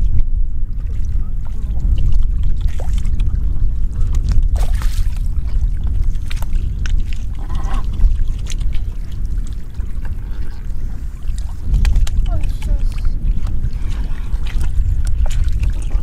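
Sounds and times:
fish splashing in shallow water: 0:00.0 - 0:16.0
wind rumble on microphone: 0:00.0 - 0:16.0
wet slaps and sloshes: 0:04.2 - 0:05.3, 0:11.3 - 0:16.0.

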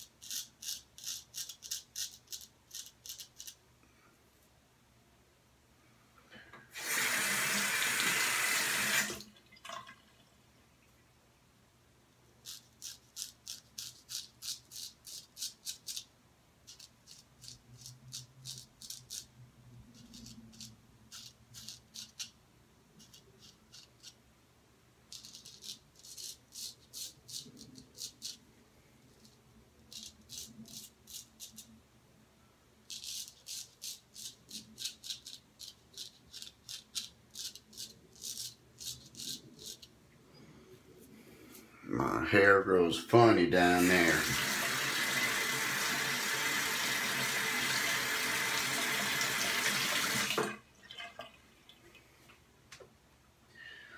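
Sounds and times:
straight razor scratching stubble: 0:00.0 - 0:03.6, 0:12.4 - 0:16.1, 0:16.7 - 0:19.3, 0:19.9 - 0:22.4, 0:23.0 - 0:24.2, 0:25.1 - 0:28.4, 0:29.2 - 0:31.7, 0:32.9 - 0:39.9.

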